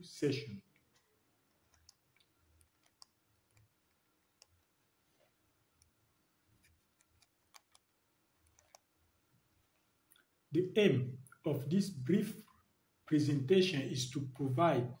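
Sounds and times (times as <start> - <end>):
faint irregular clicks: 0.7 - 9.0, 9.6 - 10.4.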